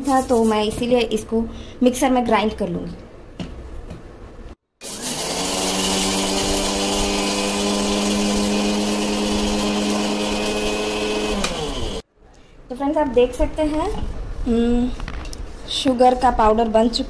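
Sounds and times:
mixer grinder motor humming: 0:04.8 - 0:12.0.

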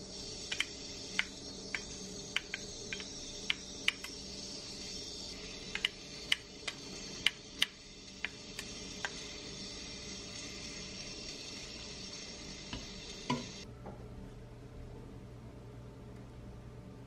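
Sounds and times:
stew boiling with popping bubbles: 0:00.1 - 0:04.4, 0:05.3 - 0:13.6.

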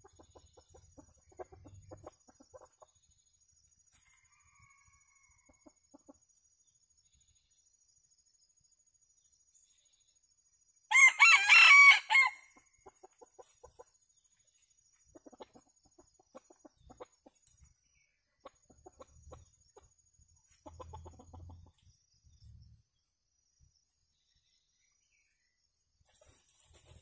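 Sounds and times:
birds clucking softly: 0:00.0 - 0:06.4, 0:12.2 - 0:22.5
rooster crowing: 0:04.1 - 0:05.6, 0:10.9 - 0:12.5.

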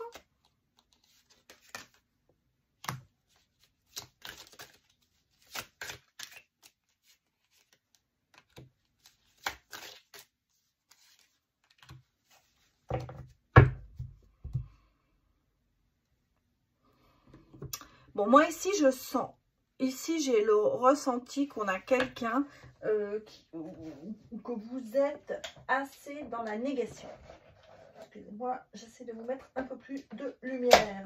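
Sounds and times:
cards snapping and rustling: 0:00.1 - 0:02.0, 0:02.8 - 0:10.3.

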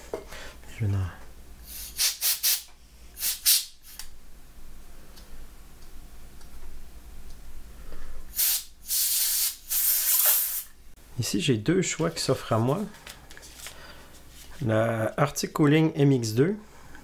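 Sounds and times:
compressed air hissing: 0:01.6 - 0:04.1, 0:08.2 - 0:10.8.

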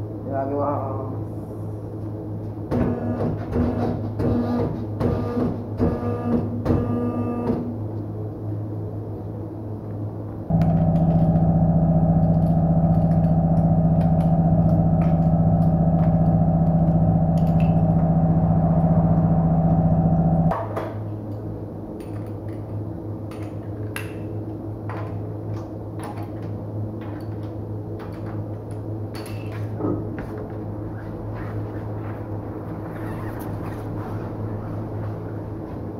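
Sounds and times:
loud machine hum: 0:10.5 - 0:20.6.

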